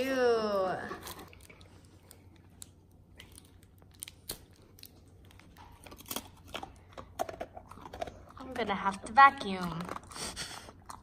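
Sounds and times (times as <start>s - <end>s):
cellophane wrapper crinkling: 0.9s - 6.9s.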